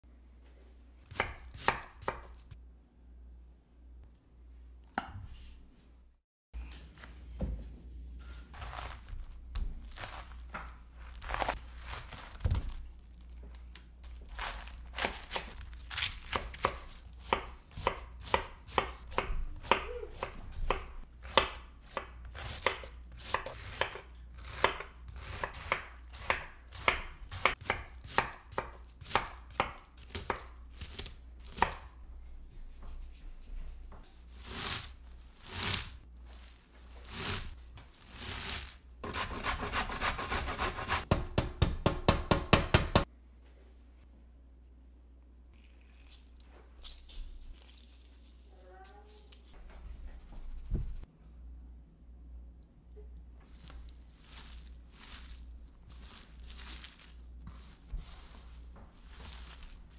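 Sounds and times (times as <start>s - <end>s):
knife chopping cabbage on board: 1.1s - 2.5s, 14.4s - 31.9s, 37.0s - 43.1s.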